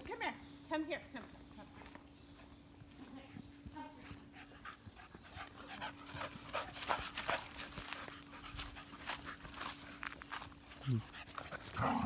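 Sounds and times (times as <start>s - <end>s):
dogs scuffling: 2.9s - 12.0s
dogs panting: 3.5s - 12.0s.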